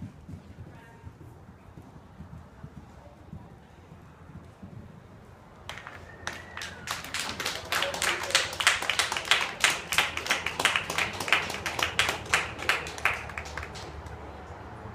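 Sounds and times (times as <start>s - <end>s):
fainter clapping behind: 5.7s - 14.2s
hand clapping: 5.7s - 14.2s.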